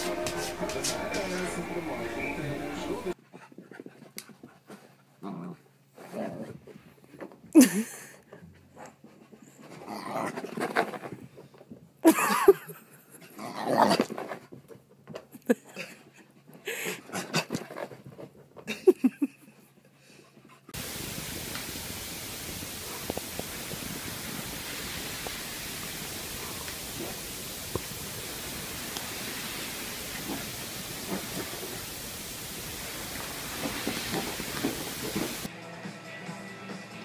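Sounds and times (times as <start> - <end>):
steady hiss: 0.0 - 3.2, 20.8 - 35.5
dog grumbling and whining: 9.7 - 10.6.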